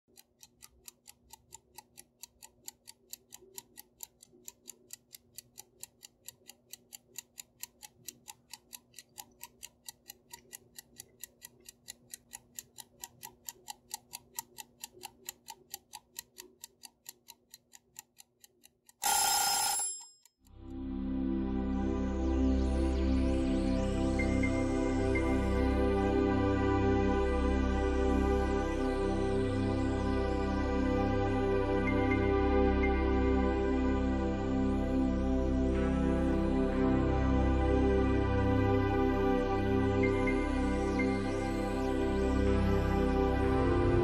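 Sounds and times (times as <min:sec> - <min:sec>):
mechanical ticking: 0:00.1 - 0:20.2.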